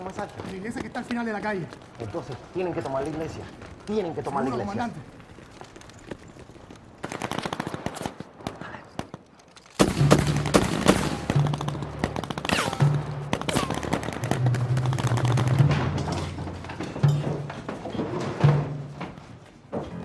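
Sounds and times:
machine-gun and rifle fire: 7.0 - 8.2, 9.8 - 16.0.

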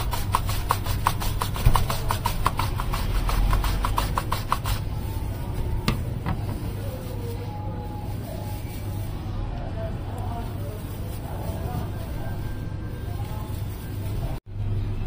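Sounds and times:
potato scraping over mandoline slicer: 0.0 - 5.3.

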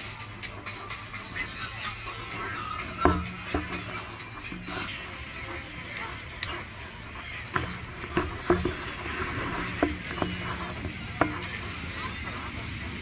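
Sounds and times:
murmur of voices: 0.0 - 13.0
steady low rumble: 0.0 - 13.0.

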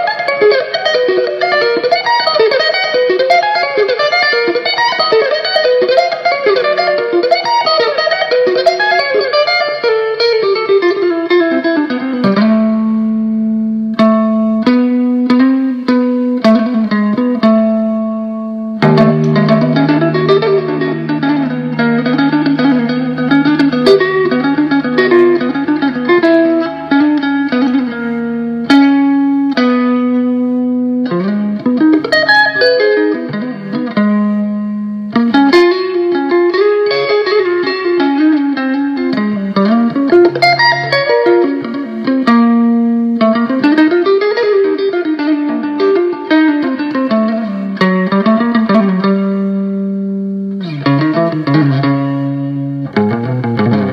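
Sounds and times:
electric guitar lead lines: 0.0 - 53.9.

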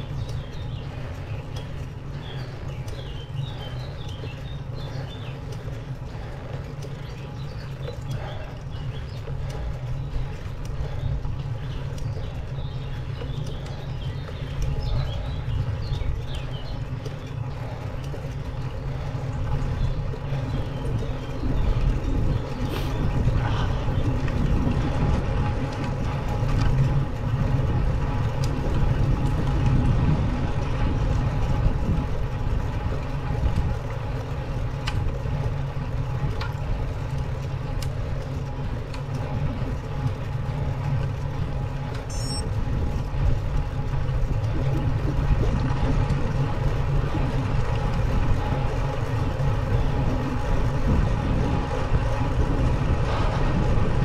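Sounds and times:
faint ticks: 0.0 - 24.4, 33.0 - 41.2
wind and road rumble: 0.0 - 54.0.

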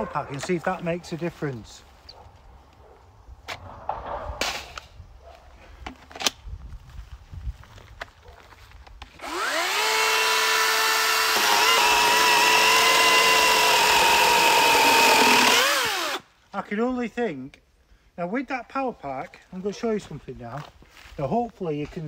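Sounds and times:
electric chainsaw motor whining: 9.2 - 16.2.

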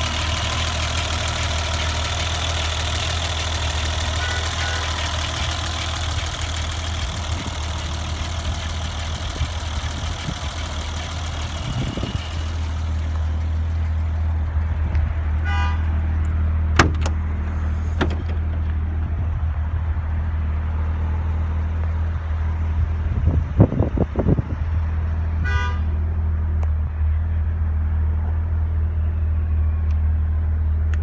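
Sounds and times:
car engine idling: 0.0 - 31.0
trunk latch clicks: 16.8 - 17.2.

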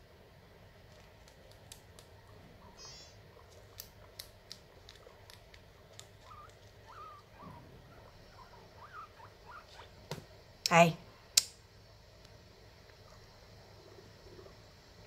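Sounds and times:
guinea pigs chewing corn husk: 0.5 - 10.4
guinea pig squeaks: 1.1 - 10.0.

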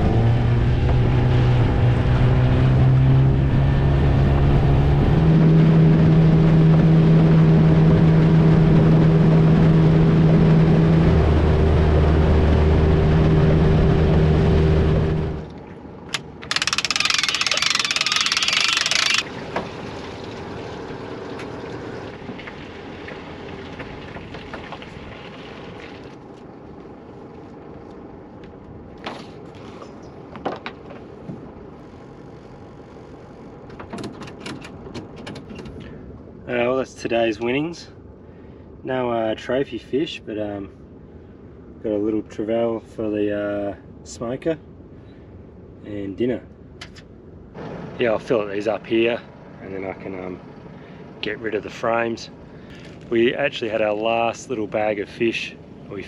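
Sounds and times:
outboard motor running: 16.4 - 24.9.

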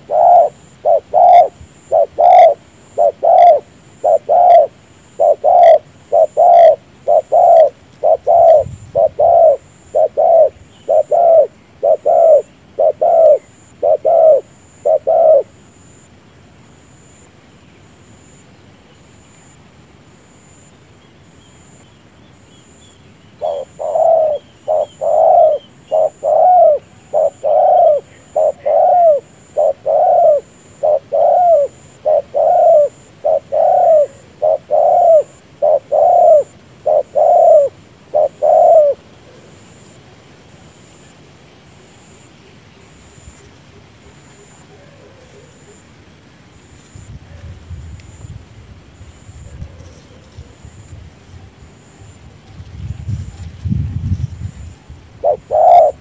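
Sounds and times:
dove cooing: 0.0 - 16.0, 23.4 - 39.9, 44.2 - 45.9, 49.3 - 56.0.

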